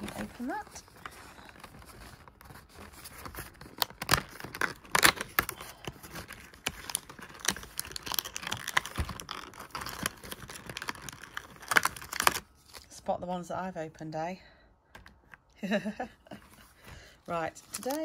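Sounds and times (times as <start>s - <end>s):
cardboard tearing: 0.0s - 12.9s
plastic tray crinkling: 17.5s - 18.0s.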